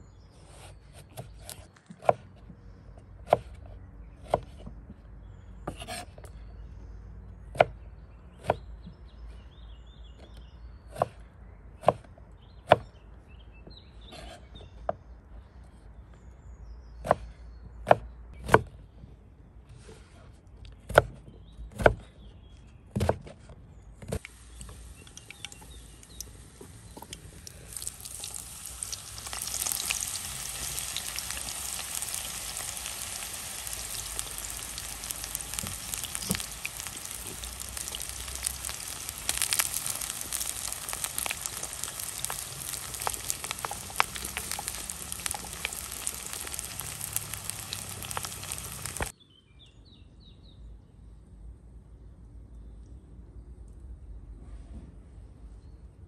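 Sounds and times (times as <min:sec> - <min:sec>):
food sizzling in hot oil: 0:24.2 - 0:49.1.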